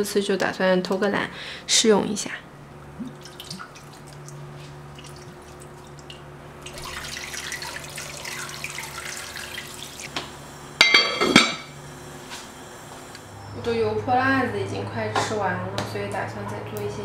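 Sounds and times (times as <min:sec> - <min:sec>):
water splashing: 0:03.0 - 0:10.1
liquid pouring into a pot: 0:03.1 - 0:10.1
loud ringing clank: 0:10.8 - 0:11.8.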